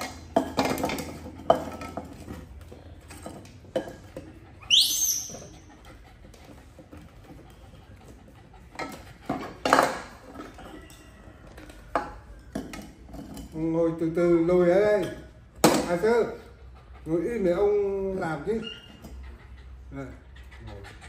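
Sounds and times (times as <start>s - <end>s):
monkey squeaking: 4.6s - 5.7s, 18.5s - 19.0s.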